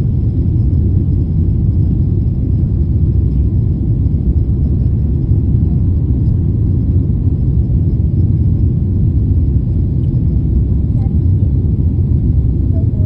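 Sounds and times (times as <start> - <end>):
airplane cabin engine rumble: 0.0 - 13.0.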